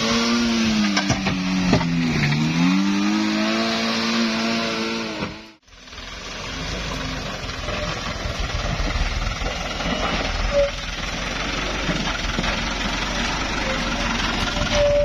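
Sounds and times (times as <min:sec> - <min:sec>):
diesel truck engine under load: 0:00.0 - 0:15.0
short tone: 0:14.6 - 0:15.0.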